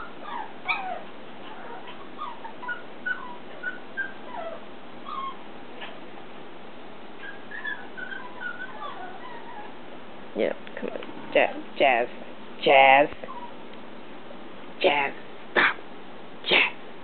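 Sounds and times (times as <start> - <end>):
puppy whimpering and yipping: 0.0 - 5.9, 7.2 - 9.8, 13.2 - 13.6.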